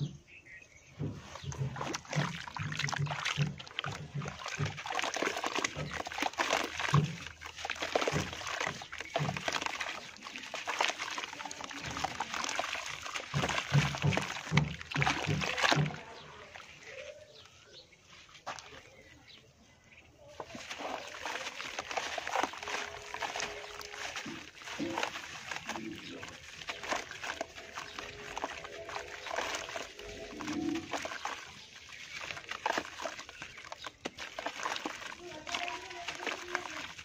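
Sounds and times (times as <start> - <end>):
hands squelching wet material: 0.0 - 37.0
water sloshing and splashing: 0.0 - 37.0.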